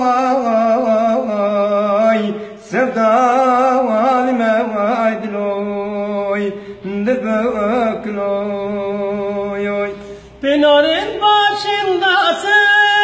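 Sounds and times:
man breathing: 0:02.4 - 0:02.6, 0:06.5 - 0:06.9, 0:09.9 - 0:10.4.

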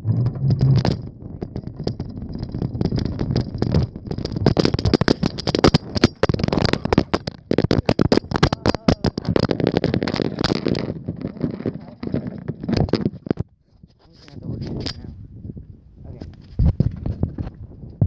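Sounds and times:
wind rumble on microphone: 0:00.0 - 0:18.0
phone rattling in wire basket: 0:00.1 - 0:13.4.

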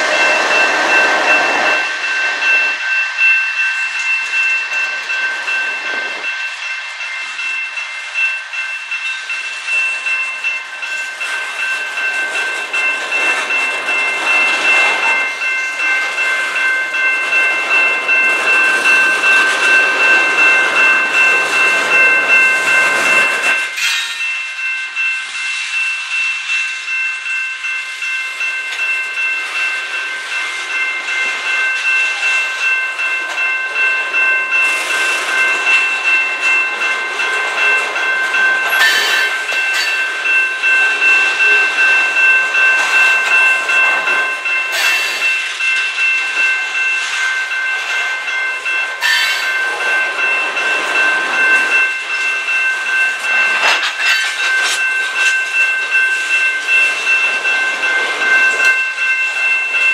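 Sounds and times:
crossing warning bell ringing: 0:00.0 - 0:59.9
train wheels clattering on rails: 0:00.0 - 0:59.9.

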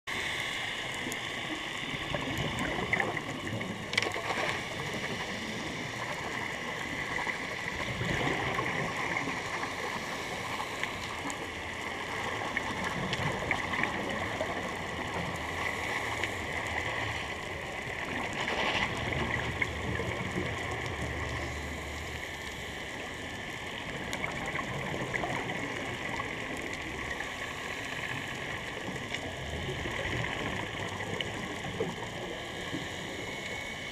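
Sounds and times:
underwater hiss and crackle: 0:00.1 - 0:33.9
exhaled bubbles rushing: 0:01.4 - 0:10.5, 0:11.8 - 0:21.6, 0:23.9 - 0:27.2.

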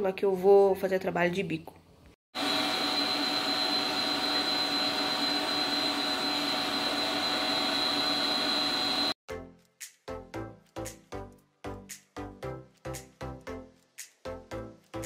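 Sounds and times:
stand mixer whirring: 0:02.4 - 0:09.2.

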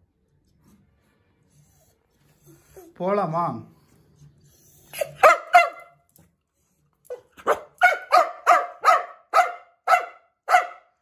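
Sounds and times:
dog barking sharply: 0:05.1 - 0:05.9, 0:07.4 - 0:11.0.

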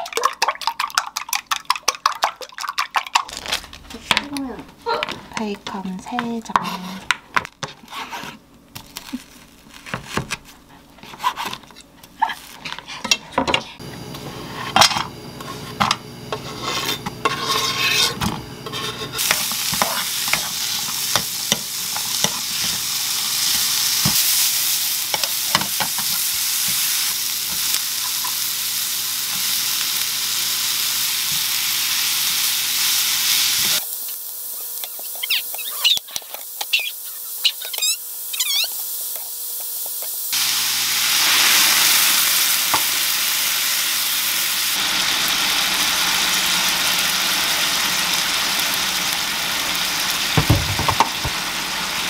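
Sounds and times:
bacon and onion sizzling: 0:00.0 - 0:13.0, 0:13.8 - 0:52.0
wooden spoon stirring in pan: 0:11.0 - 0:11.6, 0:16.3 - 0:22.8.

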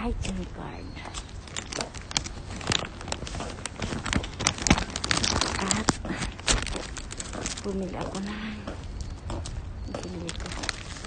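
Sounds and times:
crackling and rustling on microphone: 0:00.0 - 0:11.0.

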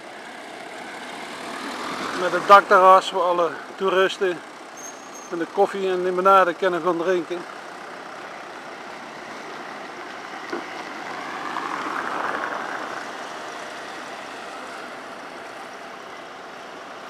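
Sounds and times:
truck engine running: 0:00.0 - 0:11.9
motor traffic: 0:00.0 - 0:17.0.

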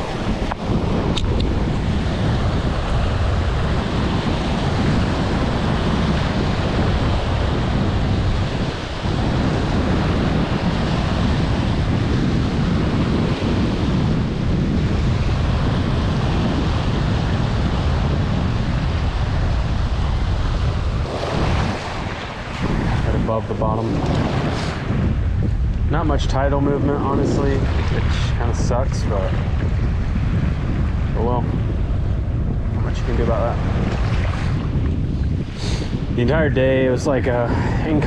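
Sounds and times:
small waves washing on sand: 0:00.0 - 0:25.3, 0:25.9 - 0:38.0
wind buffeting microphone: 0:00.0 - 0:38.0.

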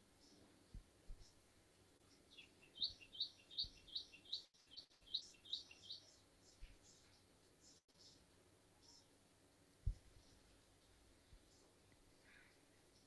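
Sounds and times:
bird chirping: 0:02.0 - 0:09.2
faint low thumps: 0:09.8 - 0:10.3.

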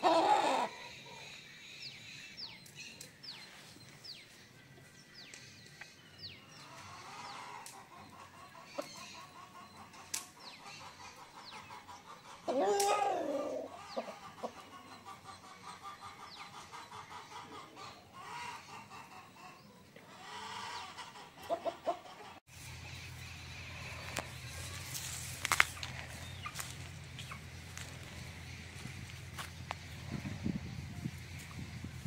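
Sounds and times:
rooster calling: 0:00.0 - 0:01.4, 0:12.4 - 0:14.6
steady low hum: 0:22.5 - 0:32.0.

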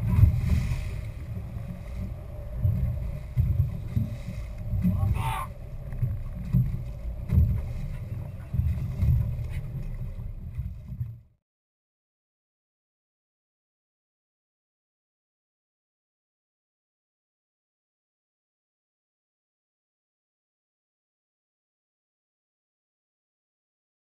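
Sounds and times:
boat engine rumble: 0:00.0 - 0:11.4.

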